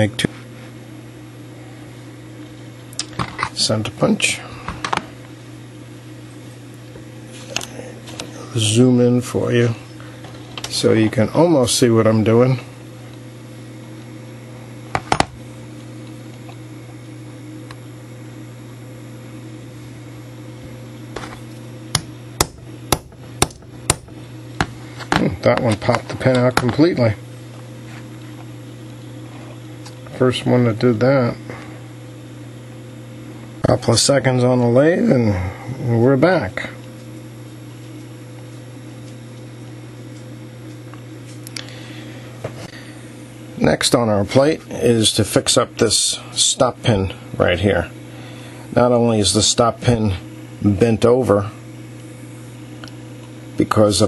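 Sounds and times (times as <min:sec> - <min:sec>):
steady low hum: 0:00.0 - 0:54.0
hammer tapping a punch: 0:21.9 - 0:24.8.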